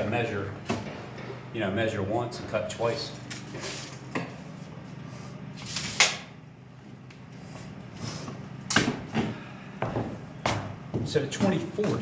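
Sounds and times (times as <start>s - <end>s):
steady low hum: 0.0s - 12.0s
tape measure snapping shut: 5.6s - 6.3s.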